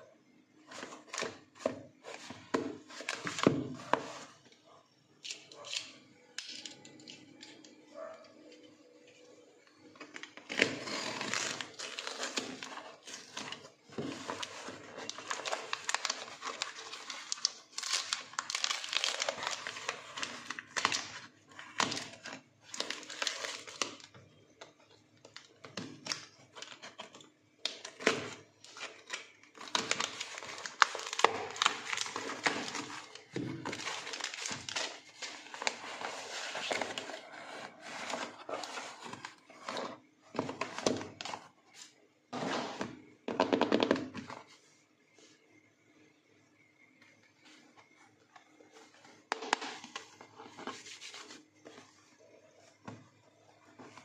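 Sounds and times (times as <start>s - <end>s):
cardboard and paper rustling: 0.7s - 4.4s, 10.0s - 24.1s, 25.9s - 42.9s, 48.7s - 53.0s.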